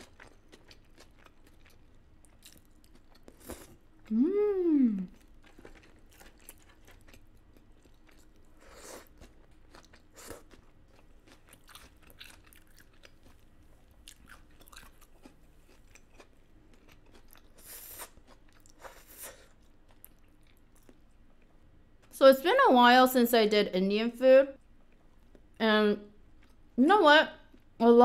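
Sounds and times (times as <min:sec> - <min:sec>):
person chewing: 0:00.0 - 0:22.1.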